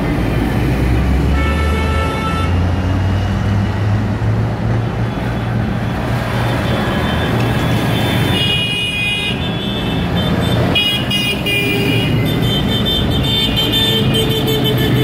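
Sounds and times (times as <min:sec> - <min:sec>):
tractor engines driving past: 0:00.0 - 0:08.6.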